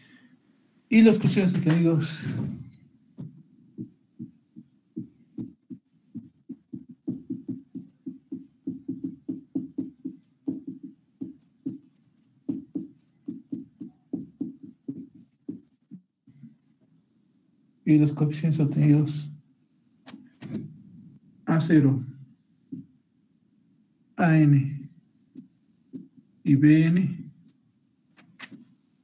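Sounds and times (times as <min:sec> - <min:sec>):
marker writing on whiteboard: 0:01.0 - 0:16.7, 0:22.6 - 0:23.0, 0:25.2 - 0:26.2, 0:28.2 - 0:28.7.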